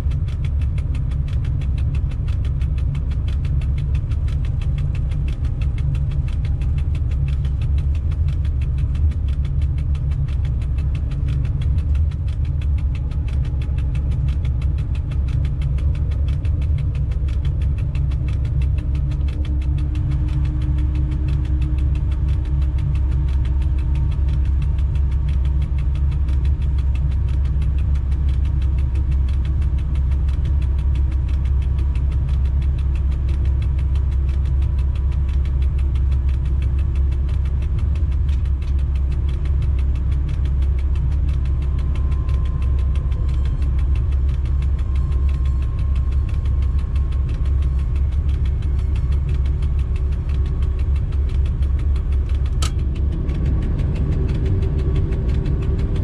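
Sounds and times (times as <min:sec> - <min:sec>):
locomotive cab rumble: 0:00.0 - 0:56.0
faint whining tones: 0:38.9 - 0:56.0.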